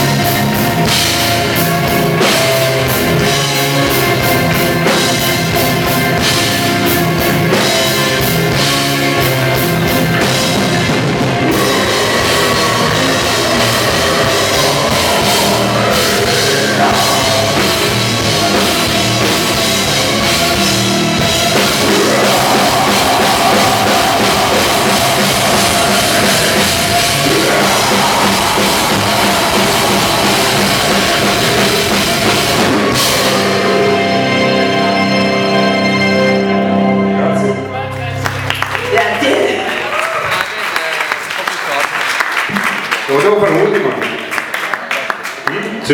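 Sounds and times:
drum kit: 0:00.0 - 0:35.7
distorted electric guitars: 0:00.0 - 0:37.7
keyboards: 0:00.0 - 0:39.8
man's harsh growled vocal: 0:11.4 - 0:19.0, 0:21.5 - 0:34.3.

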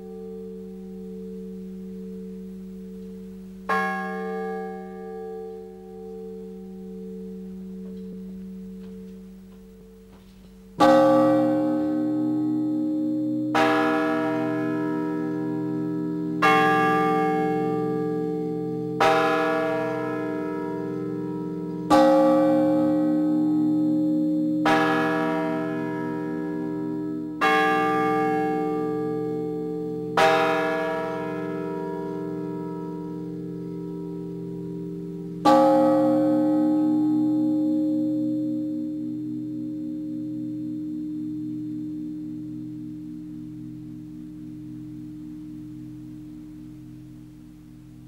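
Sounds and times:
steady low hum: 0:00.0 - 0:13.6
church bells ringing: 0:00.0 - 0:48.0.

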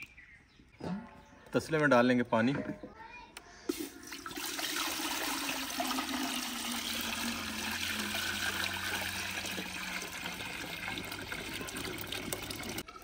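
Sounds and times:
water pouring into metal pan: 0:03.7 - 0:13.0.

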